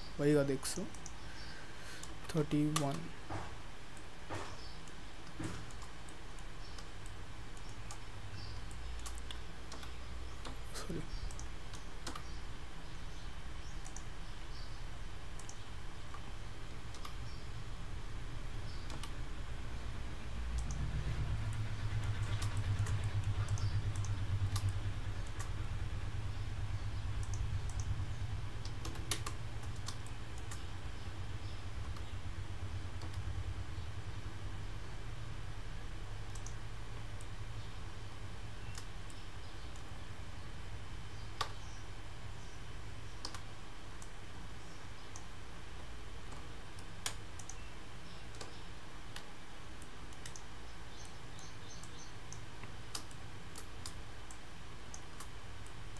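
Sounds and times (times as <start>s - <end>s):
steady low hum: 0.0s - 55.9s
computer mouse clicks: 0.8s - 3.1s, 3.9s - 12.4s, 13.6s - 14.7s, 15.4s - 17.4s, 18.7s - 19.2s, 20.5s - 25.6s, 27.0s - 28.0s, 28.6s - 30.7s, 33.0s - 33.3s, 36.2s - 37.4s, 38.6s - 40.0s, 41.4s - 41.8s, 42.4s - 44.2s, 45.0s - 45.3s, 46.3s - 55.8s.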